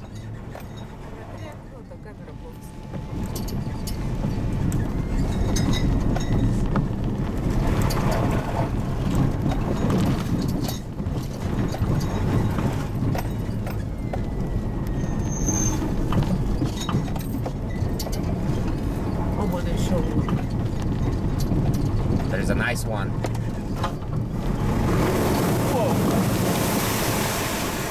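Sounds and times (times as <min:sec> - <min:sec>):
engine and tyres rumbling: 0:00.0 - 0:27.9
knocks and rattles over ruts: 0:00.0 - 0:27.9.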